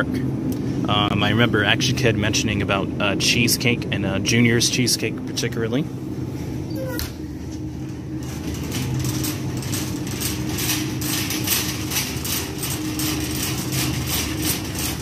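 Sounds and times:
steady low hum: 0.0s - 15.0s
shopping cart rattling: 7.8s - 15.0s.

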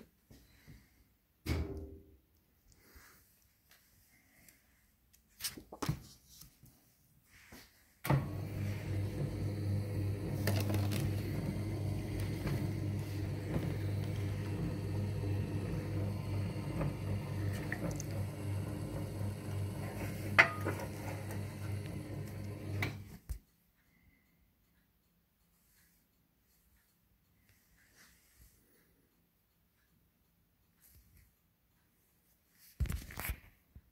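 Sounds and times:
electric motor humming: 8.2s - 23.1s.

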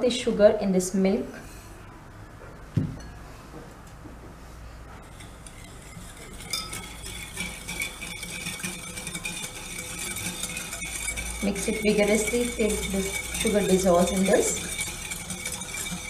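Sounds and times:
knock: 2.8s - 3.0s
whisk clinking against glass bowl: 5.0s - 16.0s.

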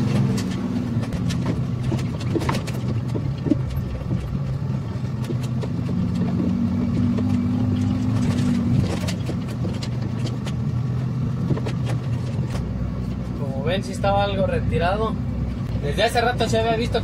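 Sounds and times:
knocks and rattles: 0.0s - 12.6s
truck engine pulling uphill: 0.0s - 17.0s.

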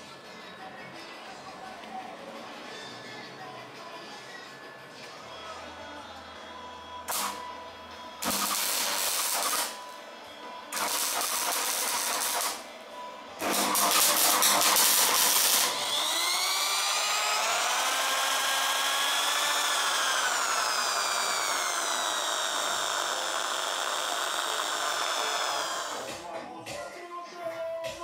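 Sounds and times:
welding crackling: 7.1s - 7.4s, 8.2s - 9.8s, 10.7s - 12.6s, 13.4s - 17.3s
electric drill motor whine: 7.1s - 10.0s, 10.6s - 12.6s, 13.4s - 26.2s.

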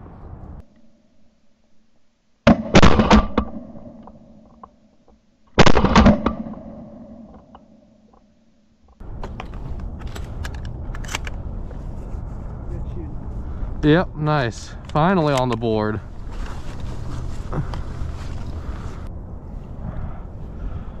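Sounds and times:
shotgun shots echoing: 2.5s - 4.0s, 5.6s - 7.2s
background noise with clicks: 7.3s - 11.8s, 14.7s - 16.9s.

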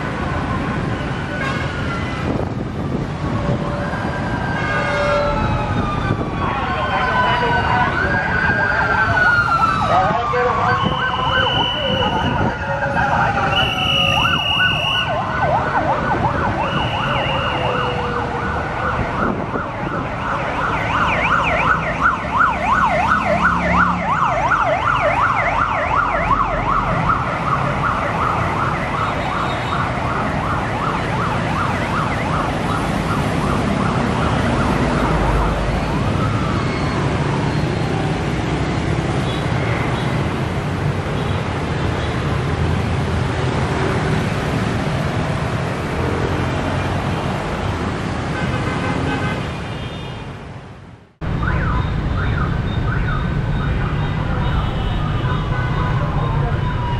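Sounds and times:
road traffic: 0.0s - 56.9s
siren yelping: 3.6s - 37.8s, 51.2s - 56.9s.

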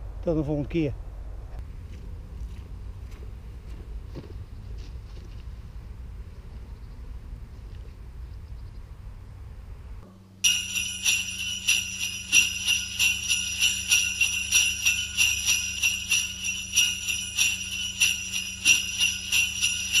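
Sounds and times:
low steady hum: 0.0s - 20.0s
jingle bells shaken: 10.4s - 20.0s.

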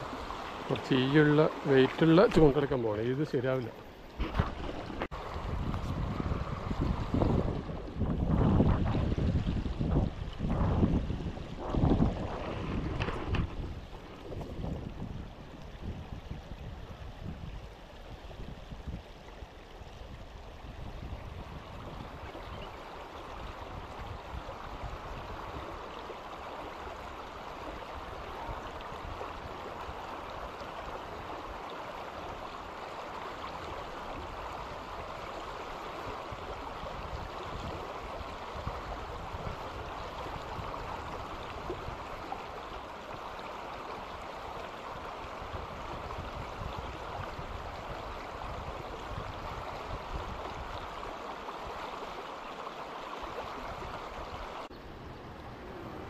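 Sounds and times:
river water rushing over rocks: 0.0s - 8.8s, 22.8s - 54.7s
wind rumble on microphone: 4.2s - 26.1s, 33.4s - 43.2s, 43.8s - 51.8s, 53.4s - 56.0s.

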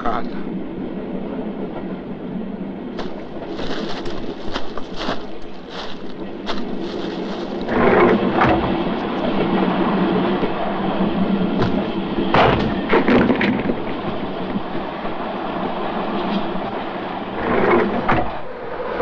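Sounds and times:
train rumbling: 0.0s - 19.0s
loud bangs and thuds: 6.5s - 9.1s, 11.6s - 14.0s.

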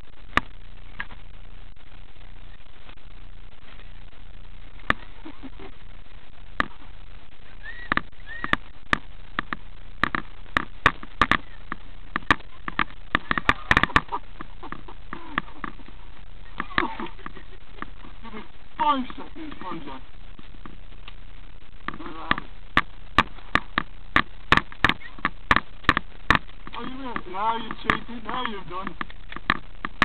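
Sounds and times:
steady hiss: 0.0s - 30.0s
sharp irregular clicks and knocks: 6.6s - 6.8s, 7.8s - 16.0s, 21.8s - 30.0s.

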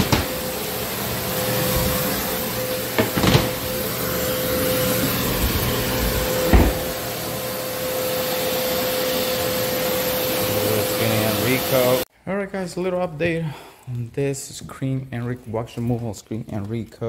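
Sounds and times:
floor buffer machine hum: 0.0s - 12.0s.

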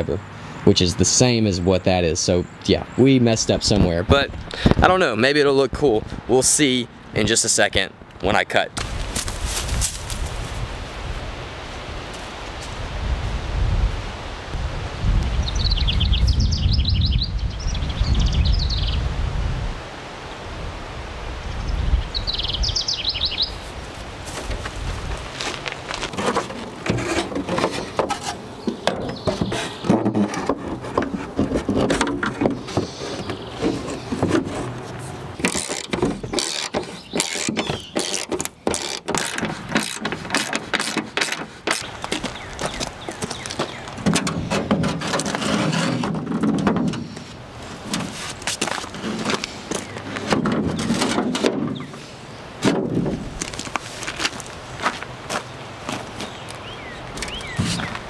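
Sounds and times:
body panel knocking and rattling: 26.1s - 34.8s, 35.4s - 47.2s, 49.1s - 51.9s.

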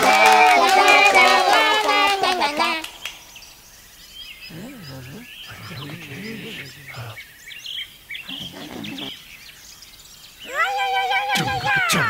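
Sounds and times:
bird chirps: 2.7s - 12.0s
distant voices talking: 4.5s - 7.3s, 8.2s - 9.3s, 10.4s - 12.0s.

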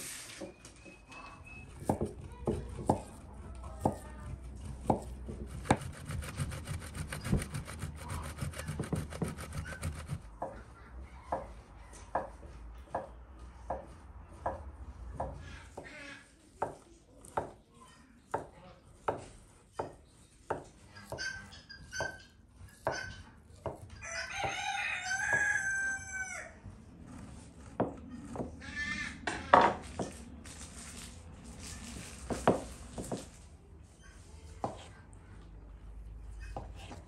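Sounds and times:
knife chopping on wooden board: 1.8s - 3.2s, 3.8s - 10.5s, 21.9s - 24.5s
cheese scraped on metal grater: 4.7s - 10.3s
rooster crowing: 24.0s - 26.7s.

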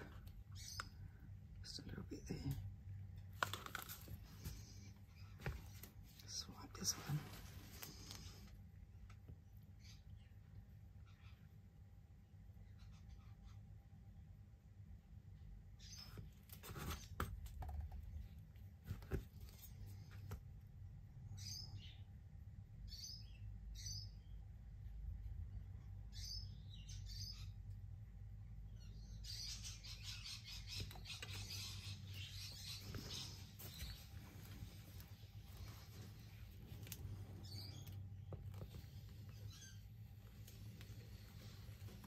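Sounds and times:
small birds chirping: 0.0s - 14.2s, 15.4s - 42.0s
steady low hum: 17.3s - 42.0s.

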